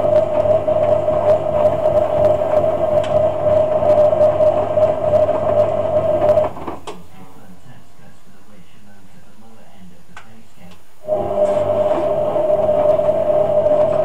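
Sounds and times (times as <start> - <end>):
washing machine motor whine: 0.0 - 7.0, 11.0 - 14.0.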